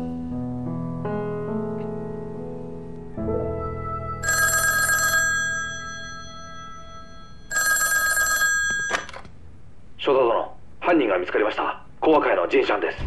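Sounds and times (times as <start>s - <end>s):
telephone bell ringing: 4.2s - 9.2s.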